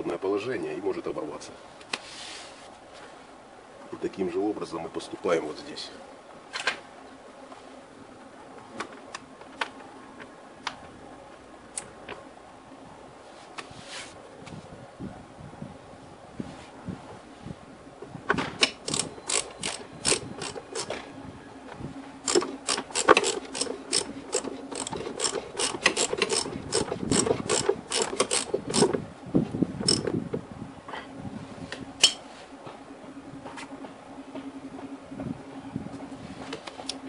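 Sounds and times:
cable tie ratchet clicking: 0:18.6 - 0:20.9, 0:22.2 - 0:29.0, 0:29.9 - 0:30.1.

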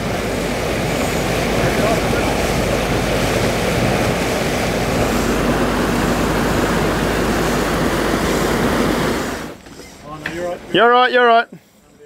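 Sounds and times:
wind rushing: 0:00.0 - 0:09.6
low engine drone: 0:00.0 - 0:10.8
sea water rushing: 0:00.0 - 0:11.0.

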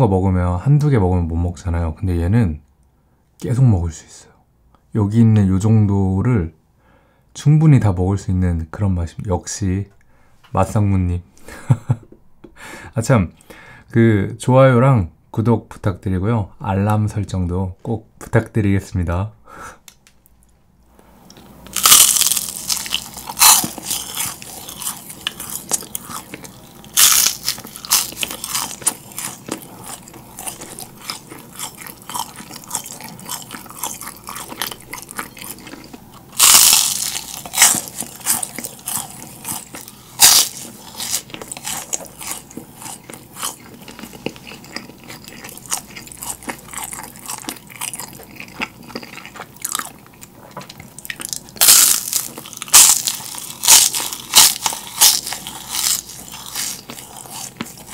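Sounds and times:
crunchy biting and chewing: 0:21.7 - 0:57.9.

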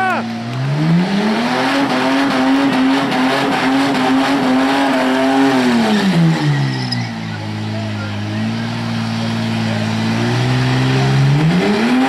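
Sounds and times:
car engine at high revs: 0:00.0 - 0:12.0
tyres screeching: 0:04.7 - 0:08.0.

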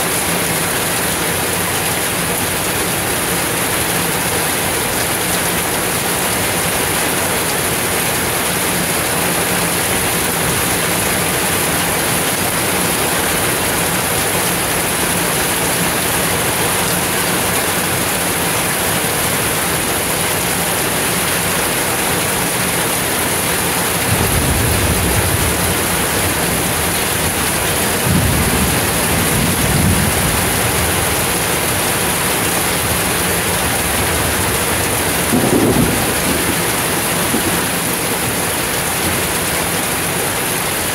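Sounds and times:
heavy rain on pavement: 0:00.0 - 0:40.9
thunder rumbling: 0:24.0 - 0:40.2.

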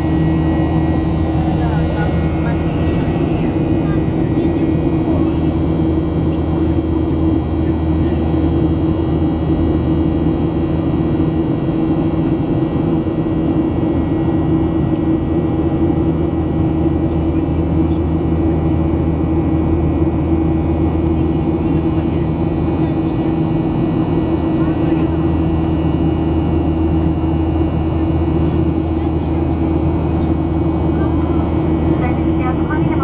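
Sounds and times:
jet engines droning: 0:00.0 - 0:33.0
low hum: 0:00.0 - 0:33.0.

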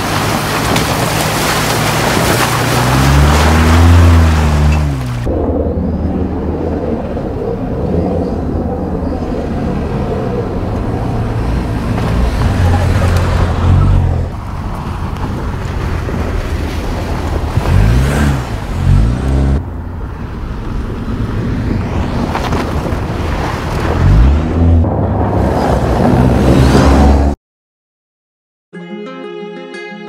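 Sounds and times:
tyres on dirt: 0:00.0 - 0:05.3.

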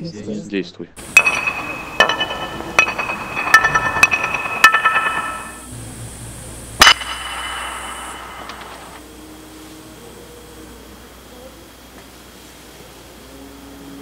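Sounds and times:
ceramic tile fragments clinking: 0:01.0 - 0:05.7.

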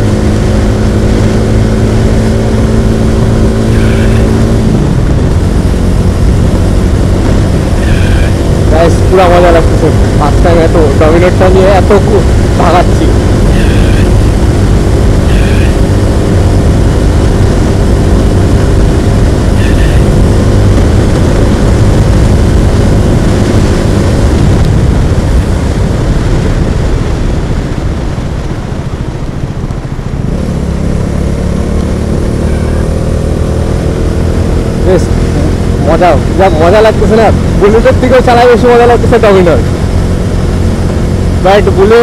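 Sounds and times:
wind noise: 0:00.0 - 0:31.8
motorcycle engine running: 0:00.0 - 0:42.0.

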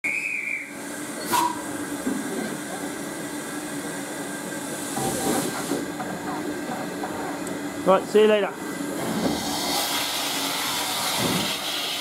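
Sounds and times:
steam hissing: 0:00.1 - 0:06.4, 0:08.7 - 0:12.0.

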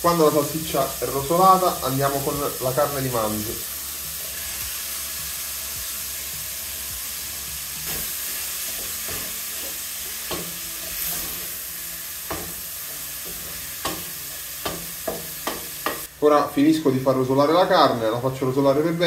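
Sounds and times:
meat sizzling in a saucepan: 0:00.0 - 0:19.0
wooden spoon knocking on pan: 0:13.2 - 0:16.1.

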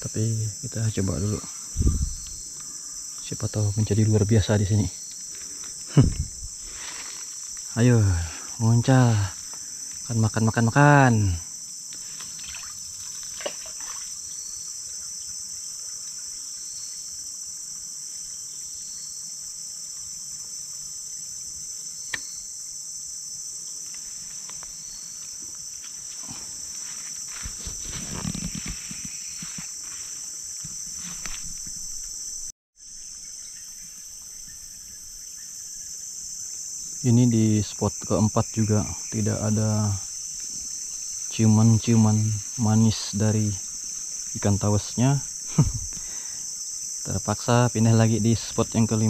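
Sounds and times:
high-pitched insect drone: 0:00.0 - 0:49.0
dry leaves rustling underfoot: 0:05.1 - 0:07.8, 0:23.9 - 0:32.5.

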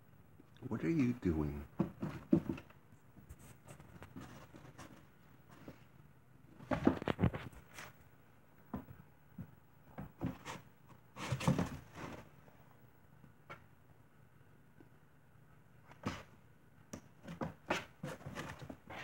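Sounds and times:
kittens scratching in cardboard box: 0:01.8 - 0:05.8, 0:10.1 - 0:12.4, 0:17.2 - 0:19.0.

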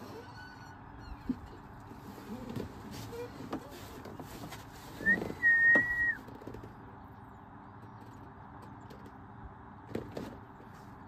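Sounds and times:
high whistle: 0:05.0 - 0:06.2.

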